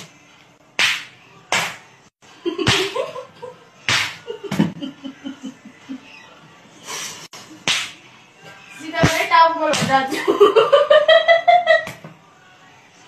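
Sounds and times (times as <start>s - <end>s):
open-hand slaps: 0.8s - 1.9s, 3.9s - 4.3s, 7.6s - 8.0s, 9.0s - 10.0s, 11.8s - 12.2s
person giggling: 4.2s - 6.1s.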